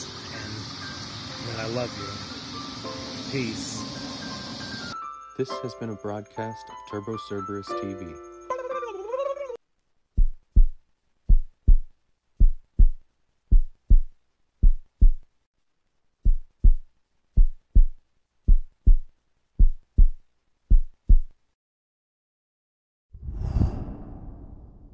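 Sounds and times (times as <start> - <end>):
heartbeat thumps: 10.2 - 15.3, 16.2 - 21.4.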